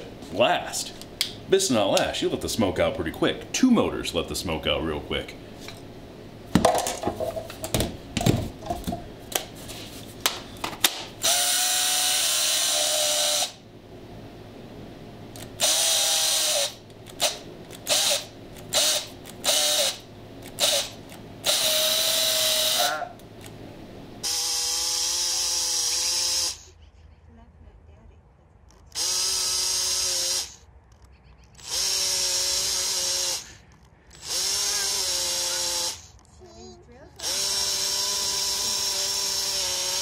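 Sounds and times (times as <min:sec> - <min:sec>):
electric chainsaw motor whine: 0:11.2 - 0:13.6, 0:15.4 - 0:23.1, 0:24.2 - 0:26.7, 0:28.9 - 0:30.6, 0:31.6 - 0:36.2, 0:37.2 - 0:40.0.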